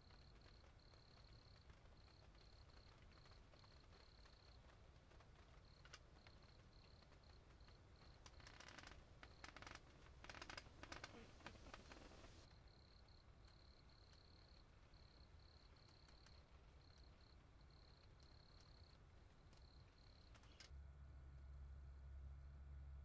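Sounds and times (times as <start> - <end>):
dry crackling rustles: 0.0 - 20.7
faint insect chirping: 0.0 - 20.7.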